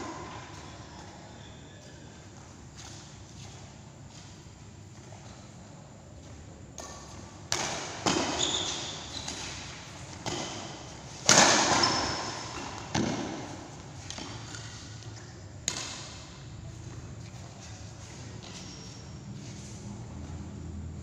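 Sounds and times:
racket hitting shuttlecock: 6.8s - 16.4s
shoe squeaks: 8.1s - 10.9s, 11.7s - 12.9s, 17.2s - 20.0s.

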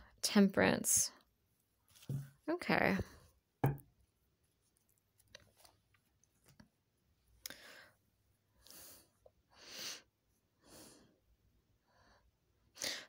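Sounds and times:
person breathing softly: 7.4s - 13.0s.

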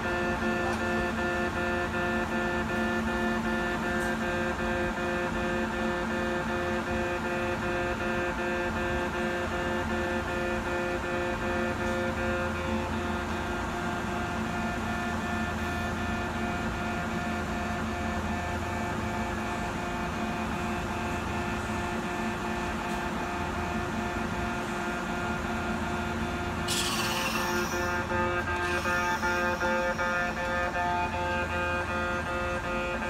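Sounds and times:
electric train humming: 0.0s - 33.0s
loud hiss: 26.7s - 30.4s.

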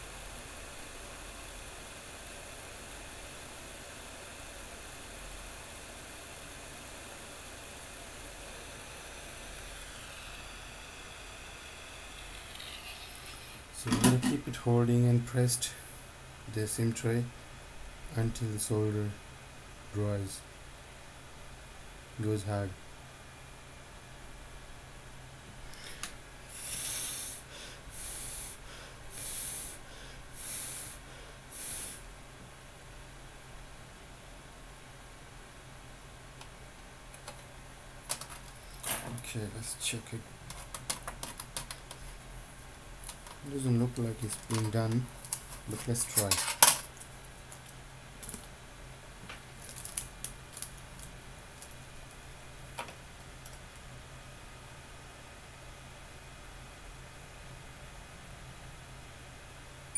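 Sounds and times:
steady low hum: 0.0s - 59.9s
hissing puffs of air: 25.7s - 32.1s.

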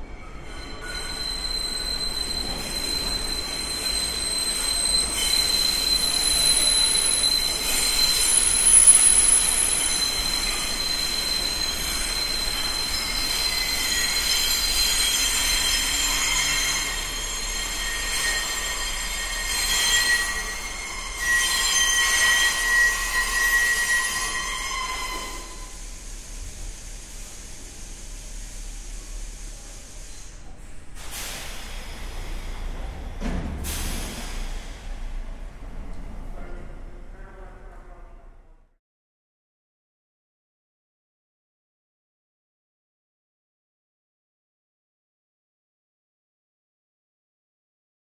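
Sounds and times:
train wheels squealing on rails: 0.0s - 37.1s
subway train rumble: 0.0s - 38.8s.

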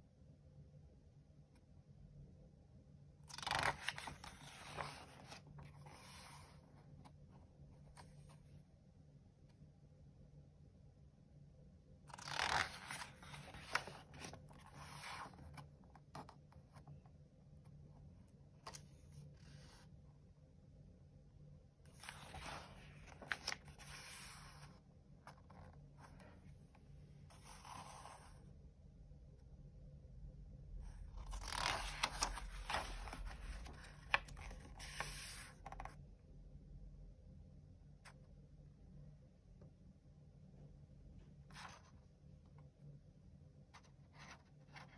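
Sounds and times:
paper page rustling: 3.3s - 7.2s, 12.1s - 16.9s, 21.9s - 26.4s, 31.2s - 35.9s.

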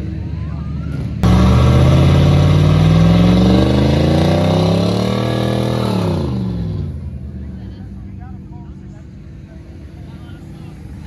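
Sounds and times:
truck engine revving: 1.2s - 7.8s.

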